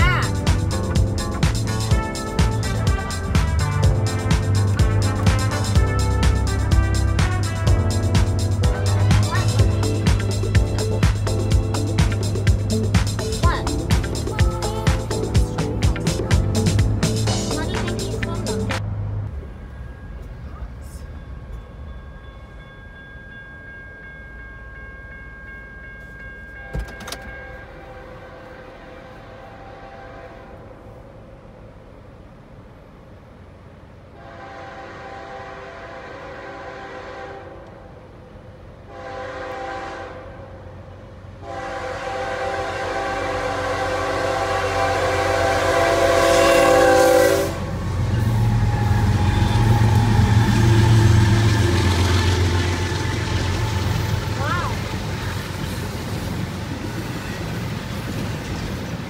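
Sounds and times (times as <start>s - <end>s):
diesel engines rumbling past: 0.0s - 21.5s, 27.8s - 59.0s
crossing bell ringing: 0.0s - 29.4s, 42.8s - 59.0s
train horn: 1.9s - 10.2s, 27.5s - 31.0s, 34.2s - 38.0s, 38.8s - 55.3s.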